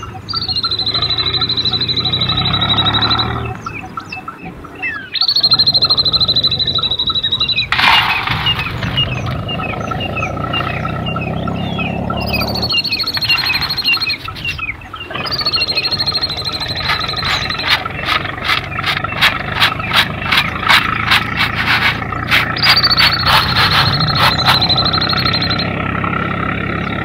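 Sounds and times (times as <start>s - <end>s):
birds chirping: 0.0s - 27.0s
high rapidly pulsing drone: 15.3s - 25.6s.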